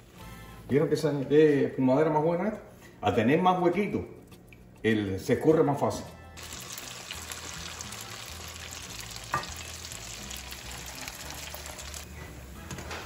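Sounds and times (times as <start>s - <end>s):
fritters frying in hot oil: 6.4s - 12.1s.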